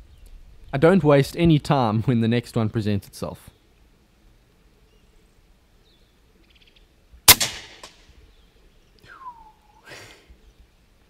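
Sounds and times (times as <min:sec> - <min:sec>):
air rifle shot crack: 0:07.3 - 0:08.1.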